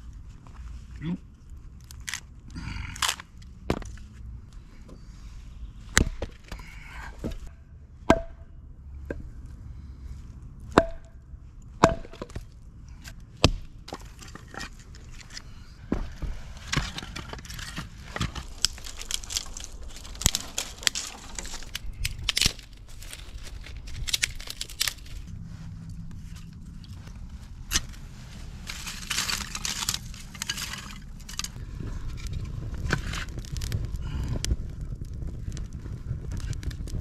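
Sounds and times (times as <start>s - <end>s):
twigs crackling and snapping: 1.4s - 4.6s, 11.8s - 37.0s
rustling: 13.9s - 34.3s.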